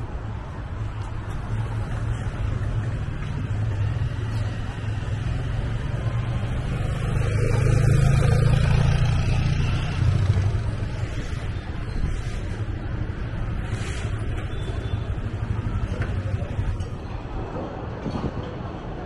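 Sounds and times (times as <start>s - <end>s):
vehicle rumble: 0.0s - 19.0s.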